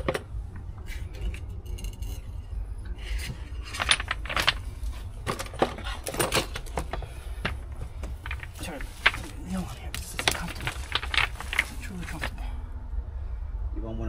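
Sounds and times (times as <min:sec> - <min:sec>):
small metal parts clinking: 0:01.0 - 0:02.5, 0:03.1 - 0:12.4.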